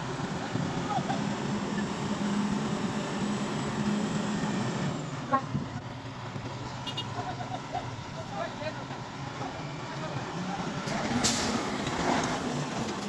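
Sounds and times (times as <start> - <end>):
excavator diesel engine droning: 0.0 - 7.3.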